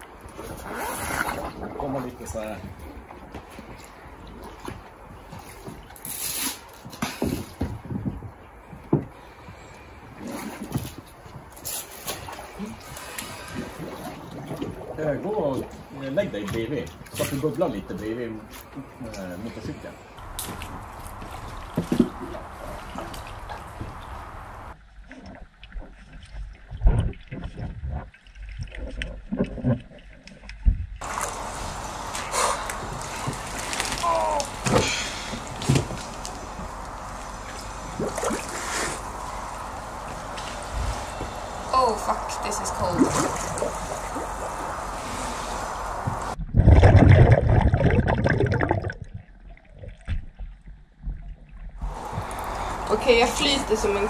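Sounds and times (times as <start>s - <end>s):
muffled underwater knocks and thuds: 6.8s - 9.2s, 20.3s - 24.1s, 25.6s - 31.0s
steady open-air hiss: 15.2s - 24.8s, 31.0s - 46.4s, 51.8s - 54.0s
underwater bubbling gurgle: 20.7s - 50.6s.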